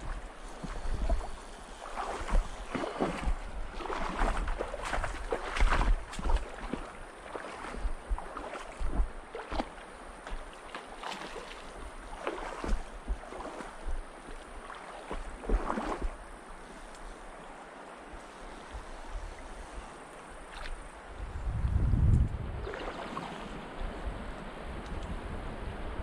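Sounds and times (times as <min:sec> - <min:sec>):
wind buffeting microphone: 0:00.0 - 0:07.0, 0:07.6 - 0:09.6, 0:20.7 - 0:26.0
stream running over cobbles: 0:00.0 - 0:17.1.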